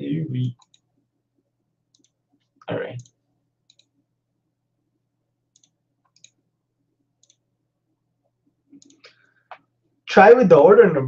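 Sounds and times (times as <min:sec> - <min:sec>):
faint clicks: 0:00.6 - 0:00.9, 0:01.9 - 0:04.0, 0:05.5 - 0:06.4, 0:08.2 - 0:09.7.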